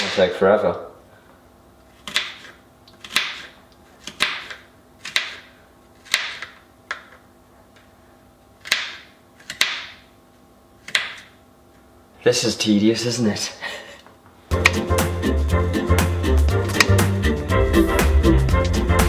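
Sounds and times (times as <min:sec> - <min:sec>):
knife chopping on cutting board: 0:02.0 - 0:06.6, 0:14.5 - 0:14.9.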